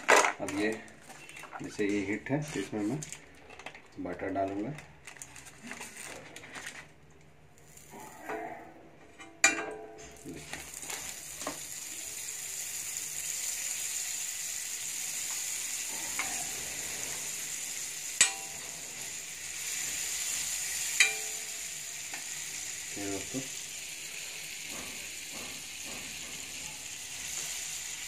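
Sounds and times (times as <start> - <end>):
butter sizzling on griddle: 7.6 - 8.2, 10.2 - 28.0.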